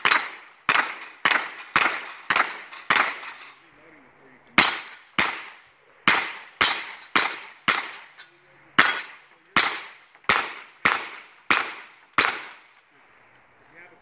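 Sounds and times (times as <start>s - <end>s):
gunshots with echo: 0.0s - 3.2s, 4.6s - 8.0s, 8.8s - 12.7s.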